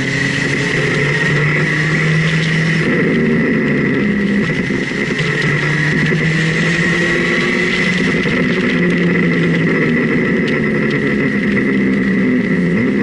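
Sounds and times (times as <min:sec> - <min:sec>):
steady high whine: 0:00.0 - 0:13.0
vehicle engine running: 0:00.0 - 0:13.0
wind and road rush: 0:00.0 - 0:13.0.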